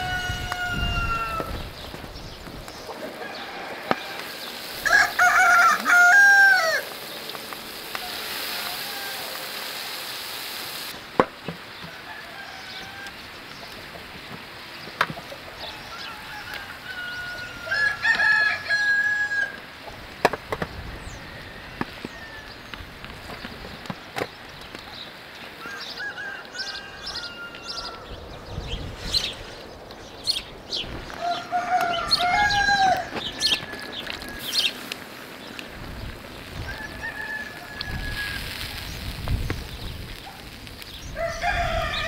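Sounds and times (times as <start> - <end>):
rooster crowing: 0.0 - 1.6, 3.0 - 6.9, 7.9 - 9.6, 11.9 - 13.2, 15.6 - 19.6, 21.1 - 22.6, 25.6 - 28.1, 31.2 - 34.7, 36.6 - 38.8, 41.2 - 42.0.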